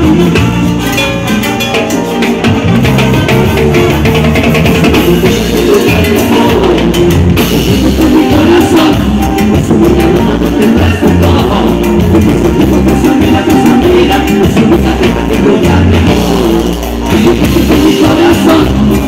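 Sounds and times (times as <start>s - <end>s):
band playing live: 0.0s - 19.0s
drum kit beat: 0.0s - 19.0s
electric bass: 0.0s - 19.0s
people singing: 4.6s - 19.0s.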